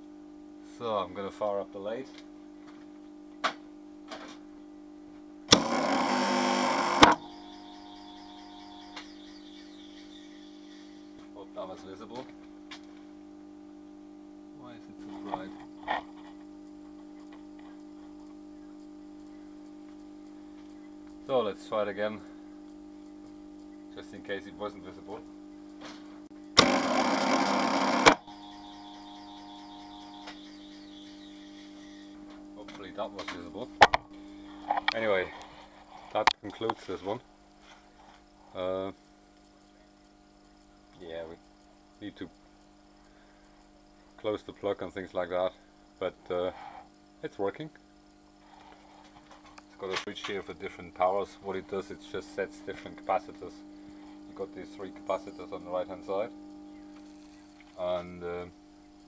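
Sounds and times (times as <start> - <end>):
loud electrical buzz: 0.0 - 59.0
phase converter humming: 0.0 - 59.0
lathe motor buzzing and whining: 5.5 - 11.4, 26.5 - 32.7.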